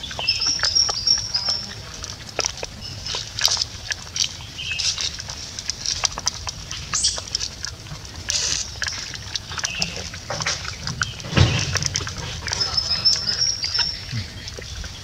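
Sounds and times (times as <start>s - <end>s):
high animal chirps and squeaks: 0.0s - 1.9s, 4.5s - 5.4s, 8.2s - 14.8s
low outdoor rumble: 0.0s - 15.0s.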